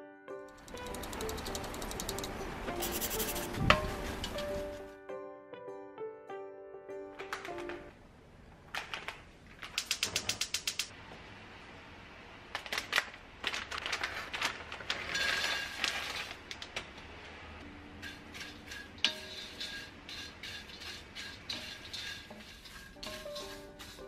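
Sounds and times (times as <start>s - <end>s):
dried shrimp clicking in wok: 0.5s - 2.4s, 8.8s - 10.9s, 18.0s - 24.0s.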